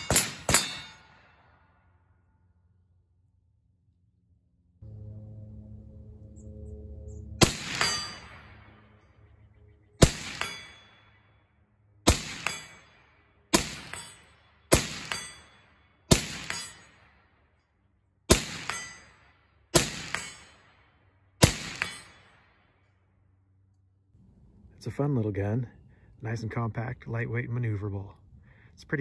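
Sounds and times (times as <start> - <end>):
steel target clanging: 0.0 - 1.5, 7.4 - 9.0, 10.0 - 11.3, 12.1 - 17.1, 18.3 - 20.7, 21.4 - 22.4
suppressed rifle shots: 7.4 - 8.8, 10.0 - 11.2, 12.0 - 17.2, 18.3 - 19.0, 19.7 - 22.6.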